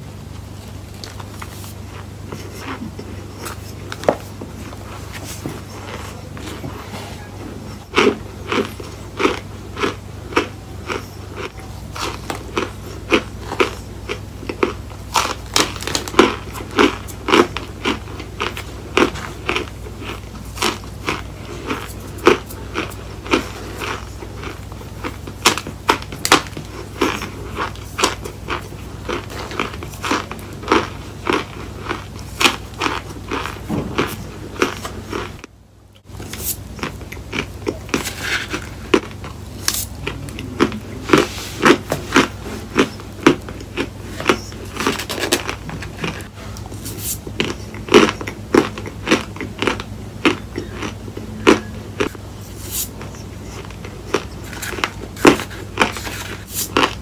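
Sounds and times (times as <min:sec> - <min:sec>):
steady low hum: 0:00.0 - 0:57.0
crisp squeaky chewing crunches: 0:00.9 - 0:35.4, 0:36.1 - 0:57.0.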